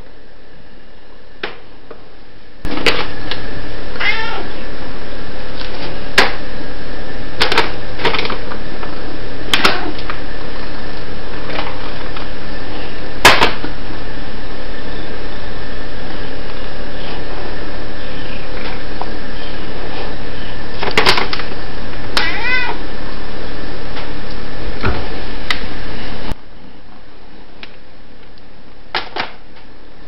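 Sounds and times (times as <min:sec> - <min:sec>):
cat meowing: 0:04.0 - 0:04.6, 0:22.2 - 0:22.8.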